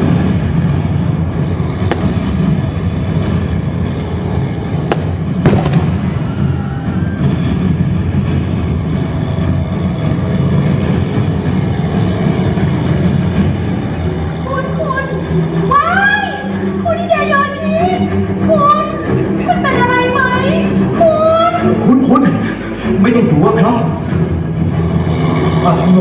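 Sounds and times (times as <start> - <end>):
low rumble: 0.0 - 26.0
sharp bangs: 1.8 - 2.8, 4.8 - 6.5.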